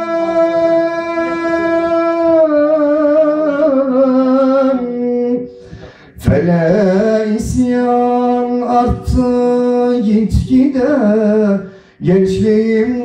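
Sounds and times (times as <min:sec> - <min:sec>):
man singing folk song: 0:00.0 - 0:13.0.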